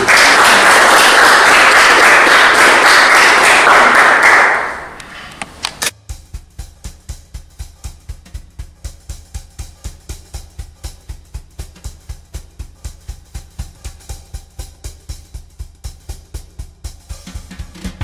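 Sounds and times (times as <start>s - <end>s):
music with steady drum beat: 5.9s - 18.0s.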